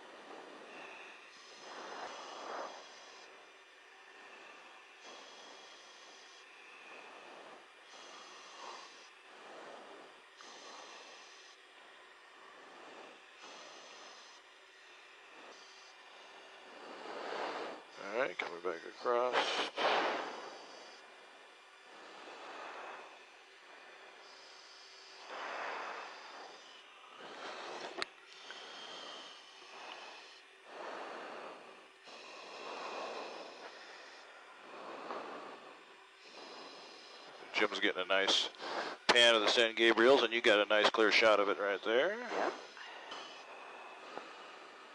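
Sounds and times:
breathing into a microphone: 0.0 - 44.9
cockpit intercom hiss: 18.0 - 20.4, 37.4 - 43.4.

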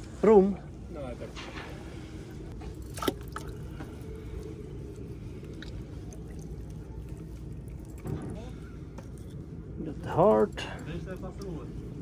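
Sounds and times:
wet squishing of fish innards: 2.7 - 8.1.

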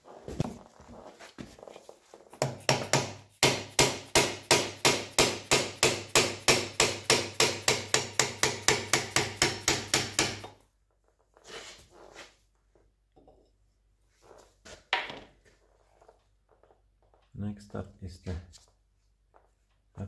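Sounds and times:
mallet hammering on metal wheel: 2.4 - 10.5.

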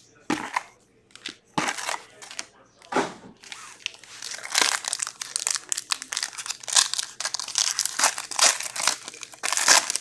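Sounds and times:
plastic wrapper crinkling and tearing: 3.4 - 10.0.

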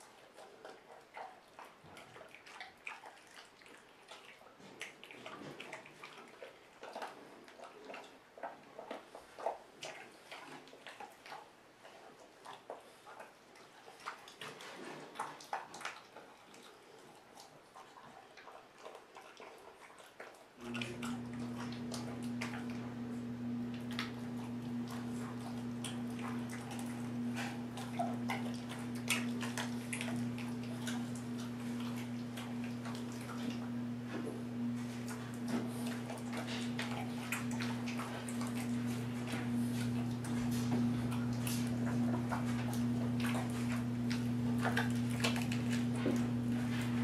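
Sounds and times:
puppy chewing bone: 0.0 - 47.0
steady low hum: 20.6 - 47.0.

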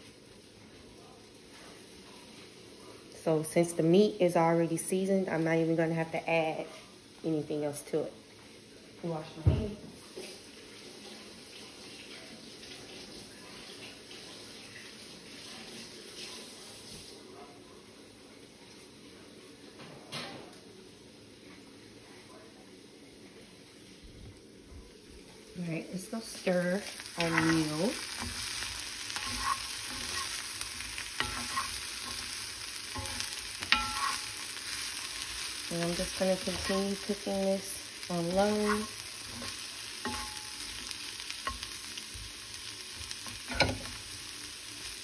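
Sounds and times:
steak and onions sizzling in skillet: 0.0 - 17.3, 25.0 - 45.0
water running from a faucet: 10.2 - 16.8, 26.5 - 45.0.

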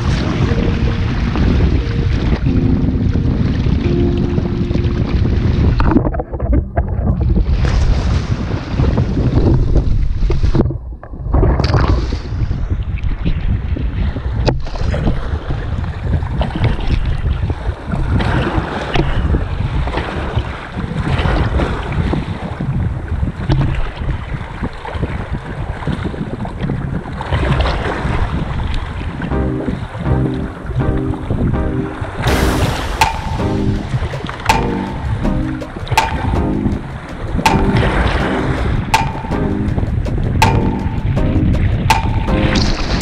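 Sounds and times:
wind buffeting microphone: 0.0 - 29.3.

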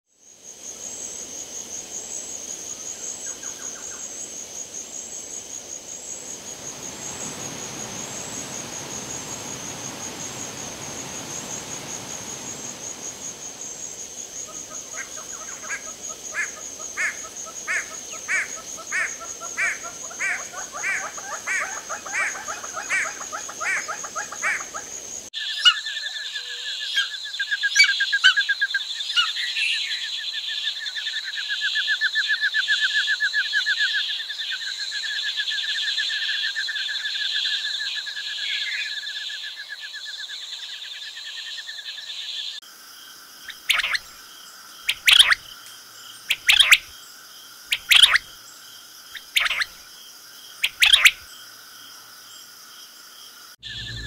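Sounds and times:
pulsing insect drone: 0.2 - 25.3, 53.3 - 54.0
rushing water: 6.2 - 23.4
bird trilling calls: 43.5 - 44.0, 44.9 - 45.4, 46.3 - 46.8, 47.7 - 48.2, 49.2 - 49.7, 50.6 - 51.2, 53.6 - 54.0
bird calling repeatedly: 43.5 - 44.1, 44.9 - 45.4, 46.3 - 46.9, 47.7 - 48.3, 49.2 - 49.8, 50.6 - 51.2.

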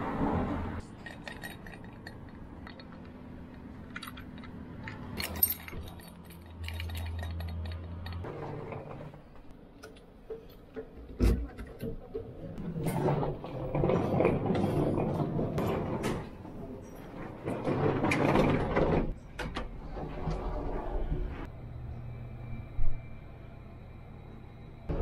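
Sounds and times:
keys jangling: 3.8 - 8.3.

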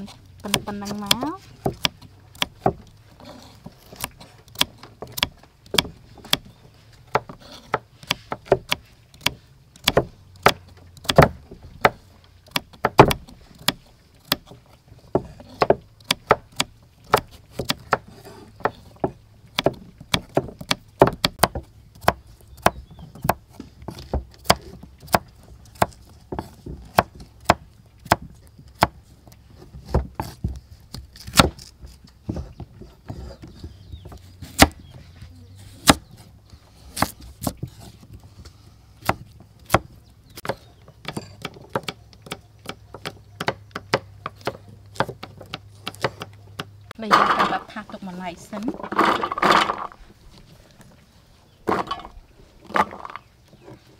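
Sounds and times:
knives chopping on wood: 0.4 - 2.8, 7.1 - 29.0, 29.8 - 32.5, 33.6 - 34.8, 35.8 - 36.3, 36.9 - 37.8, 39.0 - 47.7.

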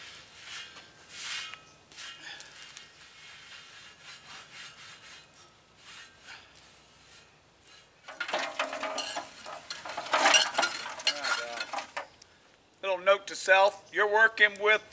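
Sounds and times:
rag scrubbing metal wok: 8.1 - 12.0.

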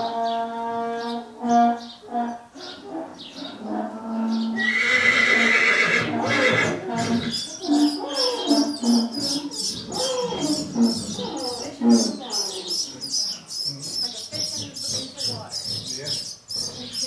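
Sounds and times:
mule colt whinnying: 4.6 - 12.2.

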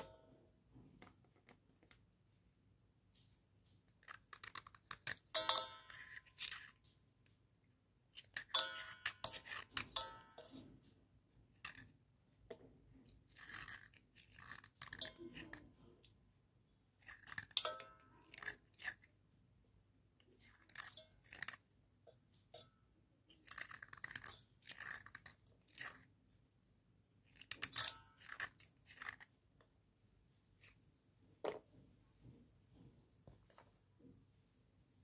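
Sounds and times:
slate pencils crunching by hand: 12.9 - 16.0, 23.3 - 26.1, 27.2 - 29.4.

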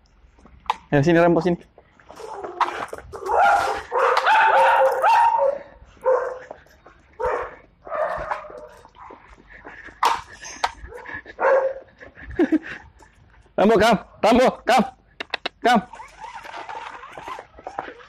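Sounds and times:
dog whining: 2.1 - 6.4, 15.3 - 18.0
dog barking: 3.2 - 6.6, 7.2 - 9.2, 10.9 - 11.9.

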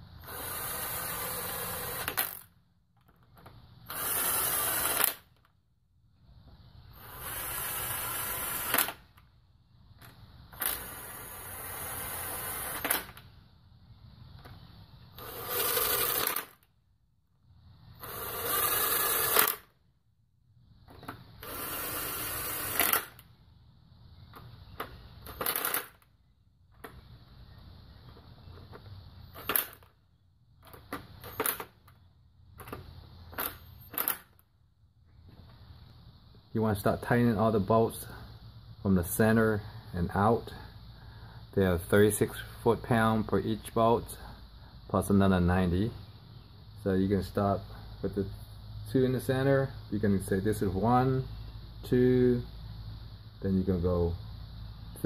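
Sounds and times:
power driver spinning bolts: 3.9 - 5.4.

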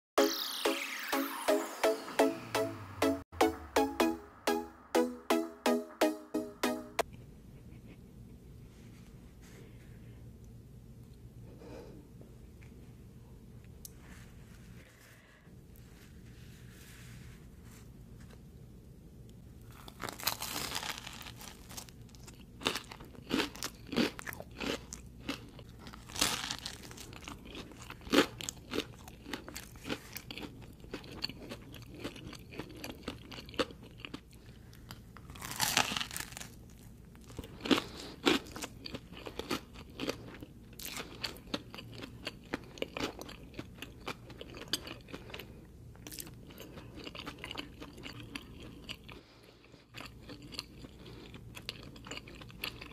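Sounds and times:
crunchy bites into crust: 19.7 - 31.1, 35.2 - 40.2
crunchy chewing: 19.7 - 52.9.

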